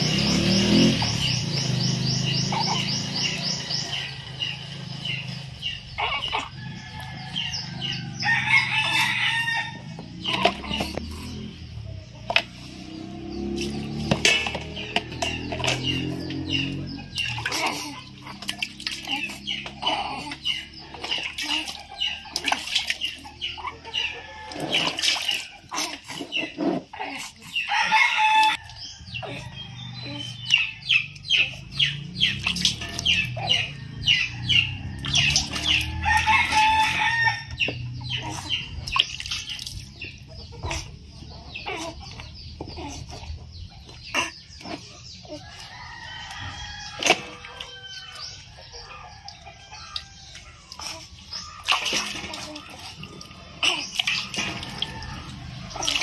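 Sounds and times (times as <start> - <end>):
chickens clucking: 0.0 - 56.0
rooster crowing: 6.5 - 10.0, 27.7 - 30.0, 33.8 - 37.6.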